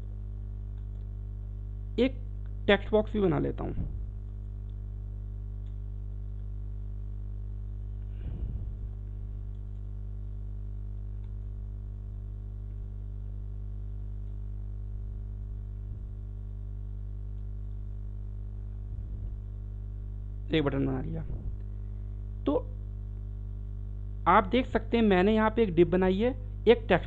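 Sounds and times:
electrical hum: 0.0s - 27.0s
faint clicks: 0.7s - 1.1s, 5.6s - 6.6s, 9.5s - 10.0s.

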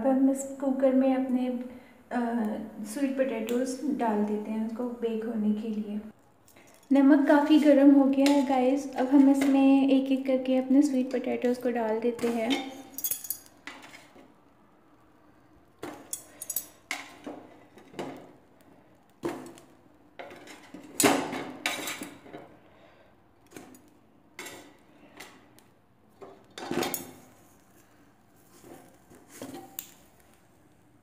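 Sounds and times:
metal tongs clinking on pot: 15.9s - 17.2s.

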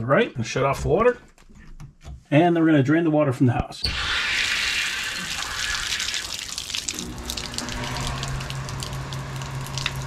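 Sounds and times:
water rushing from hose bib: 4.0s - 10.0s.

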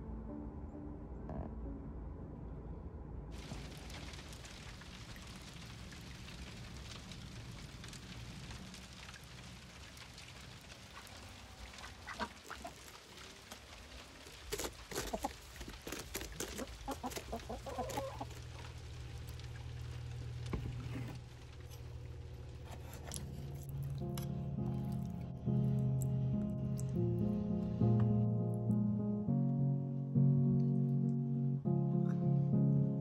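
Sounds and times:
chickens clucking: 14.9s - 18.6s.

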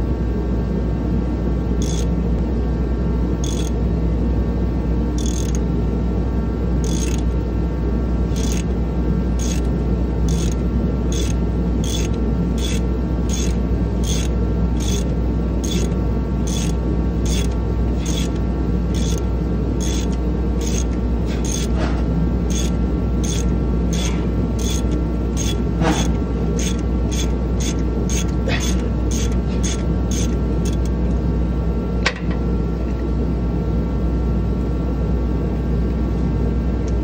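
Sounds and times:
heater droning: 0.0s - 37.0s
ratchet clicking: 1.8s - 2.1s, 3.4s - 3.8s, 5.2s - 5.6s, 6.8s - 7.3s, 8.3s - 8.7s, 9.4s - 9.7s, 10.3s - 19.2s, 19.8s - 21.8s, 22.5s - 30.9s.

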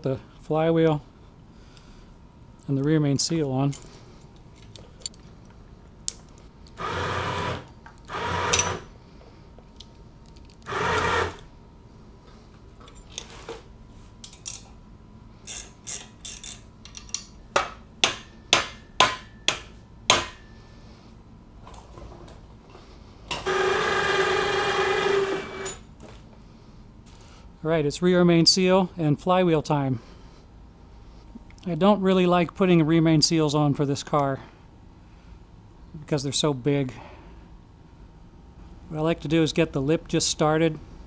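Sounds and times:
cordless power tool whining: 6.8s - 8.9s, 10.6s - 11.5s, 23.4s - 25.9s.

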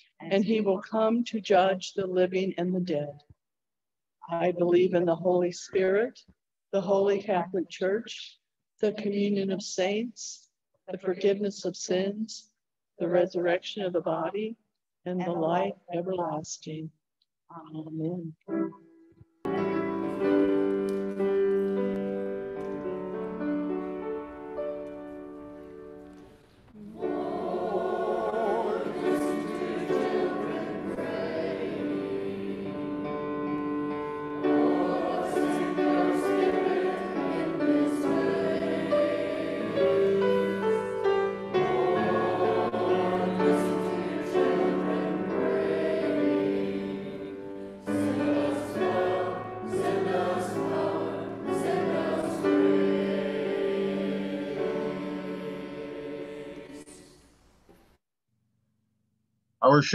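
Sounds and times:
choir singing a hymn: 19.6s - 24.9s, 26.8s - 57.3s.

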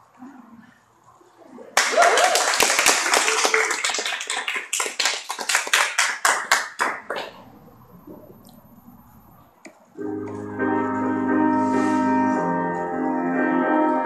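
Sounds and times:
audience applauding: 1.8s - 8.6s
people cheering: 1.8s - 9.2s.

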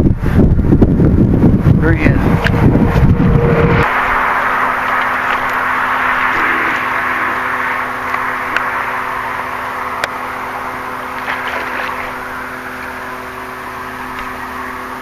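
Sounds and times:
low hum: 0.0s - 15.0s
steady rushing noise: 0.0s - 15.0s
fish splashing in water: 3.8s - 14.9s.

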